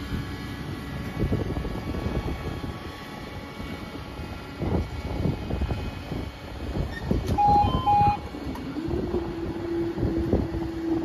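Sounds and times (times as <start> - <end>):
barrier motor humming: 0.0 - 11.0
low rumble: 0.0 - 11.0
wind noise: 0.0 - 11.0
short beeps: 7.3 - 8.3.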